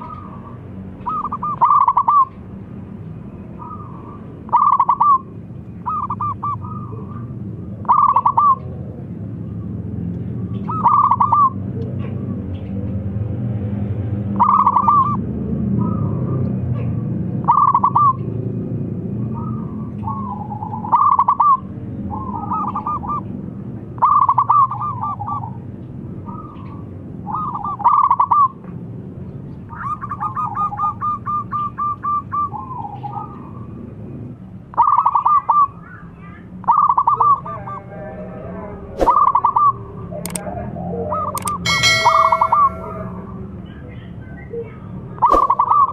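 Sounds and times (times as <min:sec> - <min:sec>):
dove cooing in staccato notes: 0:00.0 - 0:02.3, 0:03.6 - 0:05.3, 0:05.9 - 0:08.7, 0:17.4 - 0:18.2, 0:19.4 - 0:23.2
sharp clicks: 0:41.4 - 0:41.6.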